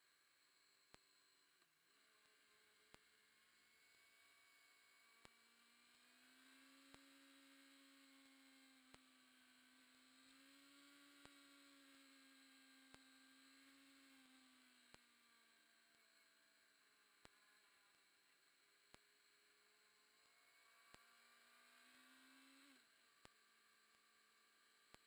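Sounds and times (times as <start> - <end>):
faint hum: 0.0 - 25.0
faint ticks: 0.8 - 3.2, 8.5 - 9.2, 14.0 - 16.3, 17.1 - 19.3, 20.1 - 25.0.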